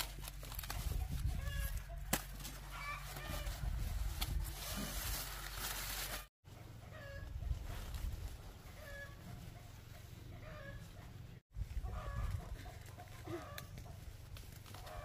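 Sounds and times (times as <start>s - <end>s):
chickens clucking: 8.5s - 14.0s.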